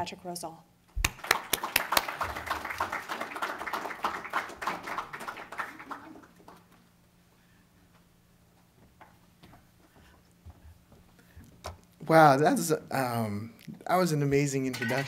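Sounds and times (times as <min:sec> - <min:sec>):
audience applause: 0:01.0 - 0:06.7.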